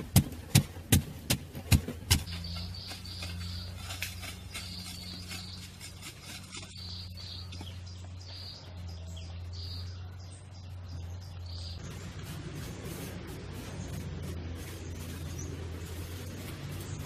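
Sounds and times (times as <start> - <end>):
high bird chirps: 2.1 - 12.2
rough noisy sound: 10.9 - 17.0.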